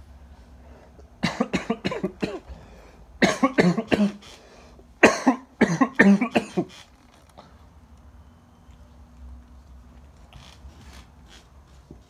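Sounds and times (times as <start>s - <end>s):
person coughing: 1.2s - 2.5s, 3.2s - 4.3s, 5.0s - 6.8s.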